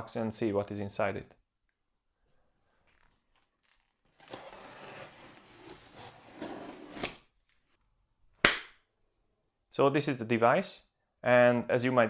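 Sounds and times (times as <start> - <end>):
cardboard rustling and scraping: 3.0 - 7.2.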